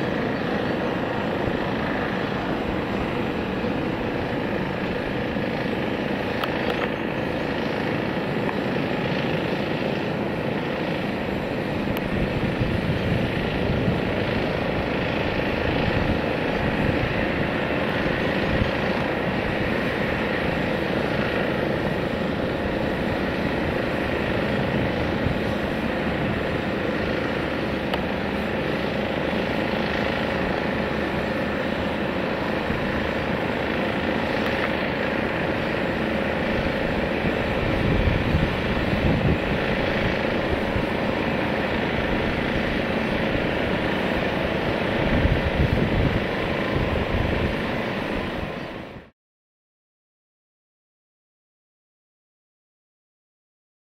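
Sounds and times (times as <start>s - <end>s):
jet engines rumbling: 0.0s - 49.1s.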